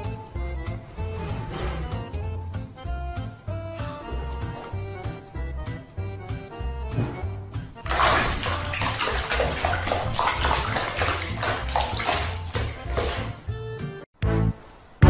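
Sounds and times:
background music with bass: 0.0s - 9.9s, 10.5s - 14.6s
water splashing in a basin: 7.8s - 13.4s.

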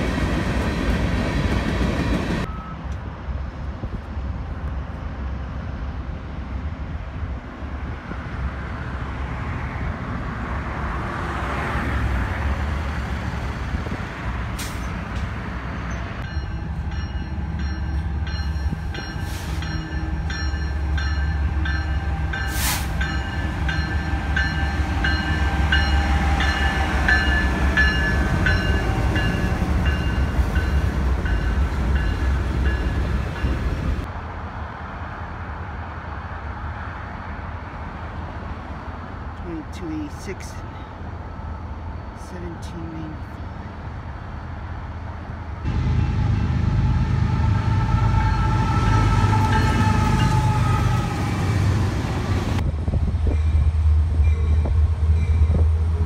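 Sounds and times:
diesel locomotive rumbling: 0.0s - 56.0s
train bell clanging: 15.9s - 33.6s.

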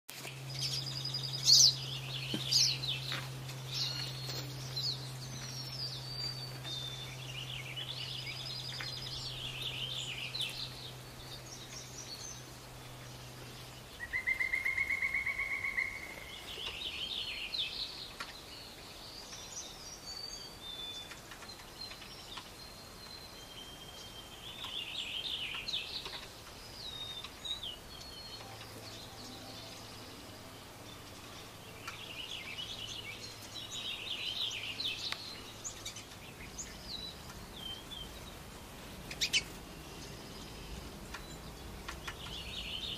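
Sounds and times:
low steady hum: 0.1s - 42.9s
songbirds chirping and warbling: 0.1s - 42.9s
loud rapid bird trill: 13.8s - 17.8s.

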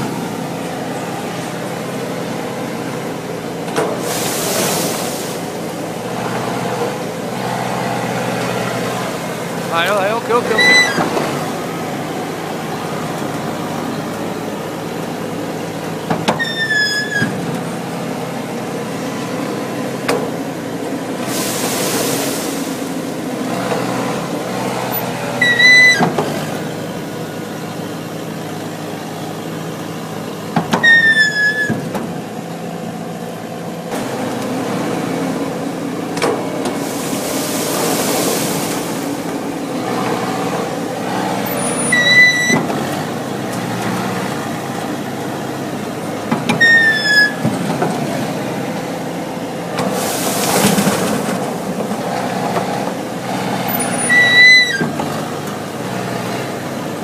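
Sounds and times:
harvester machine running: 0.0s - 57.0s
short high squeal: 9.8s - 11.1s, 16.4s - 17.4s, 25.4s - 26.0s, 30.8s - 31.8s, 41.5s - 42.7s, 46.6s - 47.4s, 53.7s - 54.9s.

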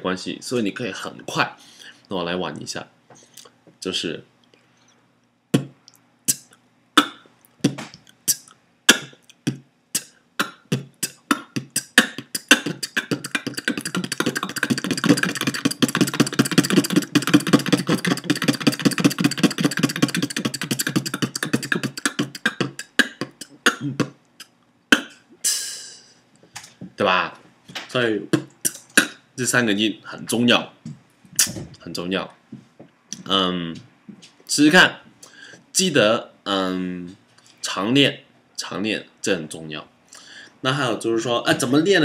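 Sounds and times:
beatboxing: 5.5s - 26.1s, 28.3s - 29.2s.

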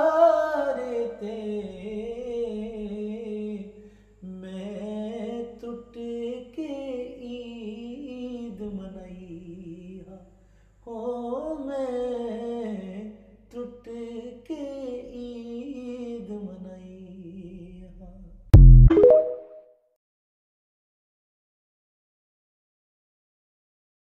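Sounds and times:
solo voice singing: 0.0s - 10.2s.

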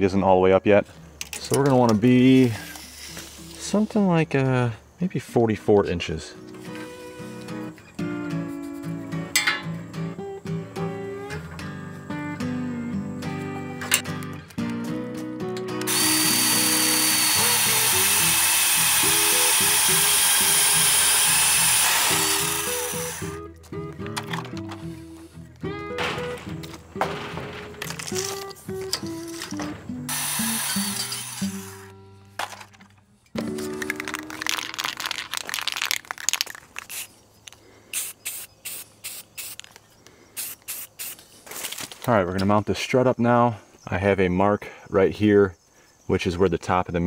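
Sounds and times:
guitar music: 5.1s - 35.3s
aerosol spray can bursts: 15.9s - 23.4s, 30.1s - 31.8s, 36.1s - 37.1s, 37.9s - 39.8s, 40.4s - 41.2s
band saw cutting steel: 15.9s - 23.4s, 30.1s - 31.9s
clicks and rattles: 23.9s - 24.8s, 26.0s - 29.8s, 32.4s - 37.6s.

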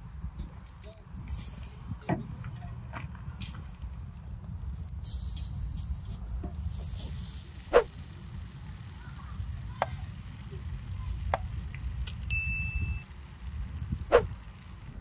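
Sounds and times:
low rumble of fire: 0.0s - 15.0s.

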